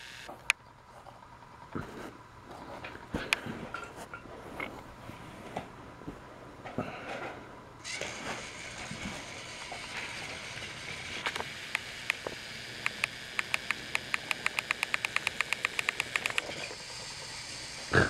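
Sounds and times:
toy train motor whir: 0.0 - 0.3, 7.8 - 18.0
rapid even clicking: 11.2 - 17.2.

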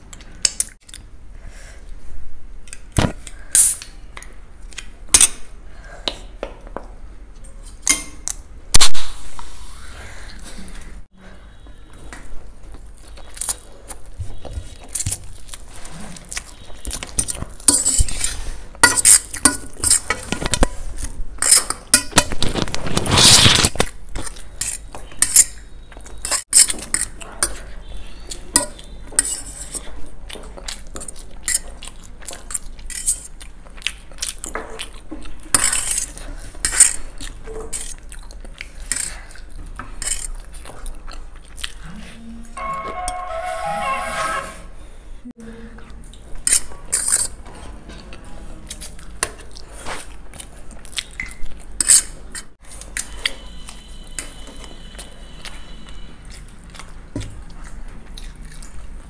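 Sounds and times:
metal forks scraping steel plates: 42.6 - 44.8
chewing and slurping noodles: 48.6 - 59.0.

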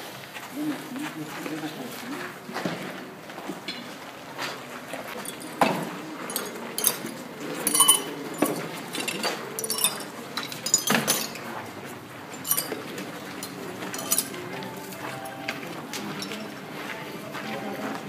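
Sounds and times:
small glass vessels clinking: 5.2 - 11.5, 12.3 - 14.8, 16.1 - 16.6.

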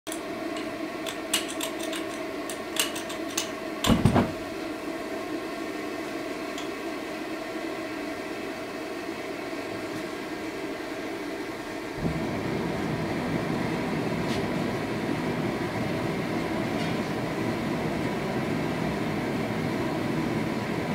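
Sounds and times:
steady mechanical hum: 0.1 - 20.9
gas igniting whoomp: 12.0 - 16.3.

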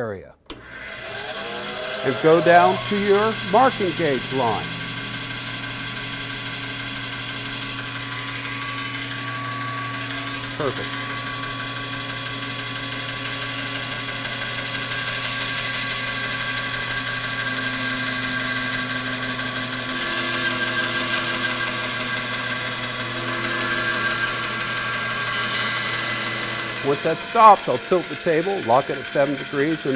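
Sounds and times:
bandsaw motor hum: 0.5 - 29.9
saw blade hissing in wood: 2.0 - 8.0.

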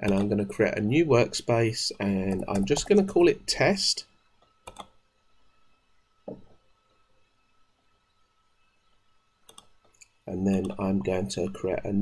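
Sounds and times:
soft clicks: 9.4 - 10.8.

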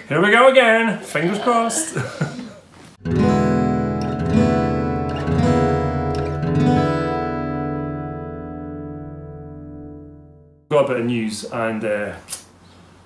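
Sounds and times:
acoustic guitar strummed chords: 3.0 - 10.6.

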